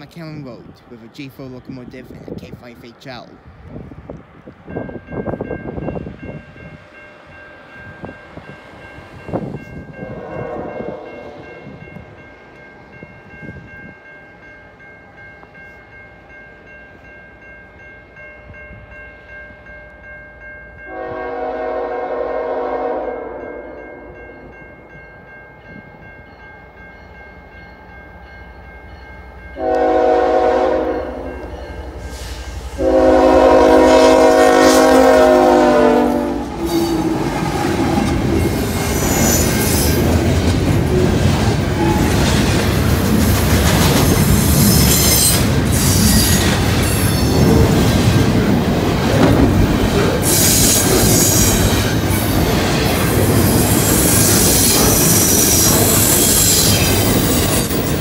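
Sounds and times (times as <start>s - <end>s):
train rumble: 0.0s - 58.0s
locomotive horn blasts: 10.0s - 11.4s, 20.9s - 23.7s, 29.6s - 31.3s, 32.8s - 37.1s.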